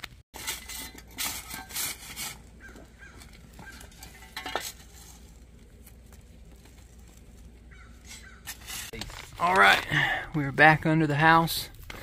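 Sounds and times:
digging tool scraping soil: 0.3 - 9.6.

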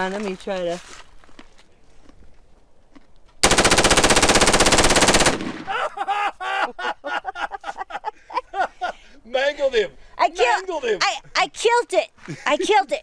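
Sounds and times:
automatic rifle burst: 3.4 - 5.7.

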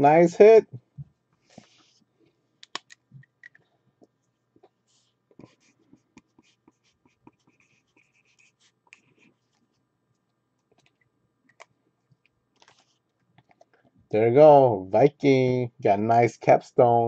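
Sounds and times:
marker scratching on paper: 5.4 - 9.4.

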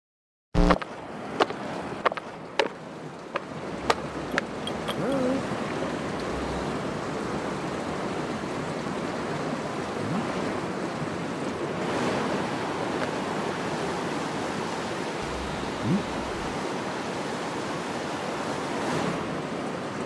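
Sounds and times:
rushing water: 0.7 - 20.0
short wavering tone: 15.2 - 16.6.

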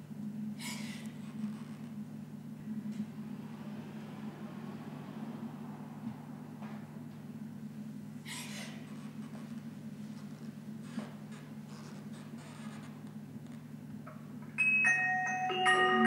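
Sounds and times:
steady low hum: 0.0 - 16.0
bell-like mallet percussion music: 14.6 - 16.0.

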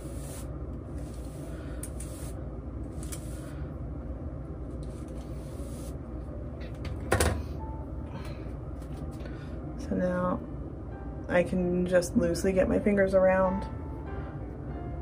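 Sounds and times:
hairbrush swishing through hair: 0.0 - 3.5, 4.8 - 6.0.

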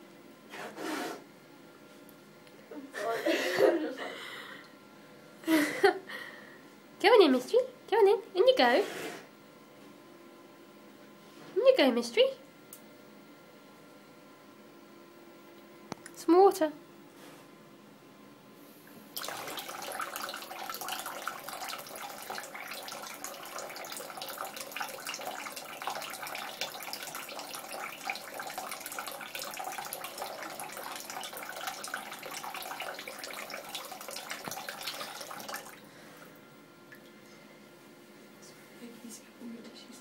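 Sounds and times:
tap water splashing into sink: 19.2 - 35.8.

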